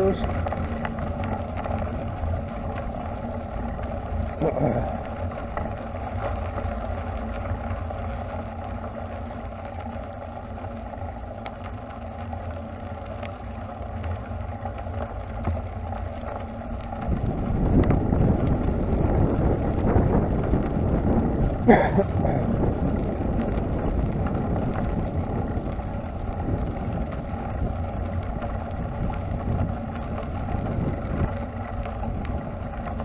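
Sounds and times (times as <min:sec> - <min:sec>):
bicycle tyres on gravel: 0:00.0 - 0:33.0
wind on microphone: 0:16.8 - 0:33.0.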